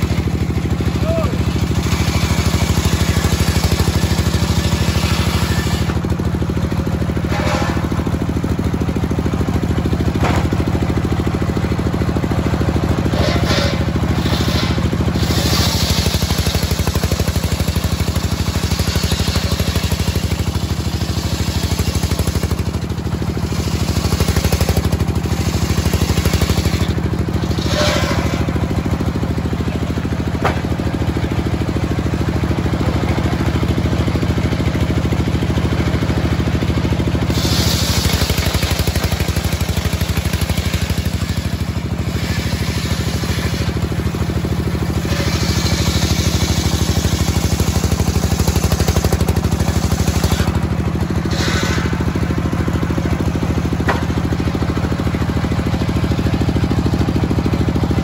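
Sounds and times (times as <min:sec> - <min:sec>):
saw blade cutting through log: 0:00.0 - 0:08.4, 0:12.6 - 0:31.2, 0:37.2 - 0:54.6
circular sawmill droning: 0:00.0 - 0:58.0.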